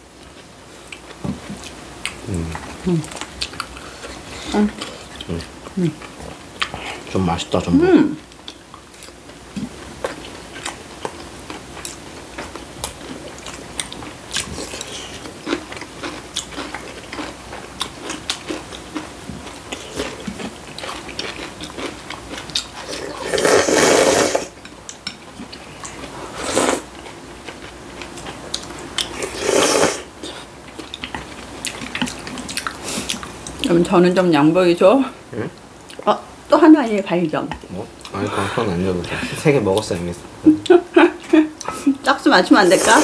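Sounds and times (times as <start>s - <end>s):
soft chewing: 0.2s - 7.1s, 8.2s - 23.6s, 24.6s - 29.4s, 30.2s - 33.7s
loud slurps of noodles: 23.2s - 24.5s, 26.4s - 26.9s, 29.2s - 30.1s.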